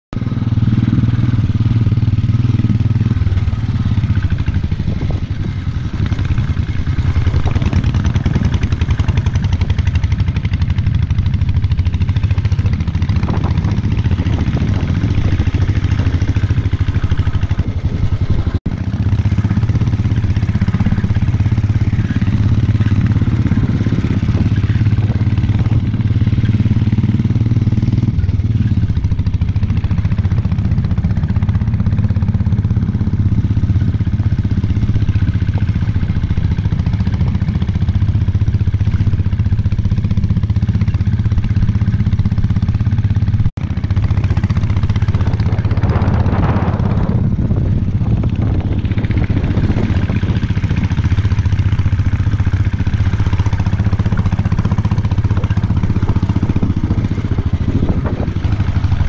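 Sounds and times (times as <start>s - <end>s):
motorcycle engine running: 0.1s - 59.0s.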